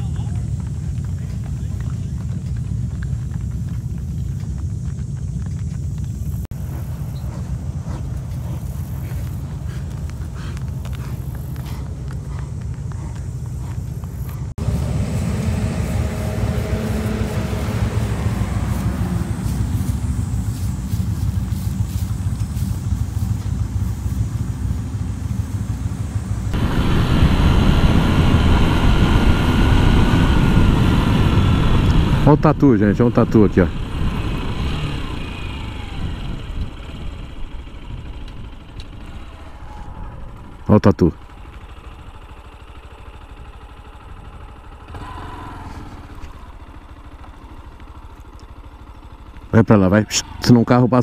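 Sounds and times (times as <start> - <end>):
motorcycle engine idling: 0.0 - 51.0
motorcycle riding: 0.0 - 51.0
road noise: 0.0 - 51.0
louder burst of noise: 26.6 - 36.0.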